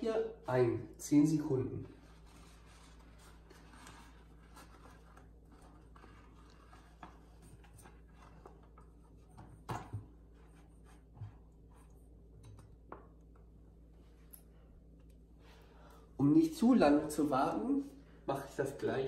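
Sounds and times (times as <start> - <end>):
low room hum: 0.0 - 19.0
rice paper rubbing in water: 1.8 - 9.1.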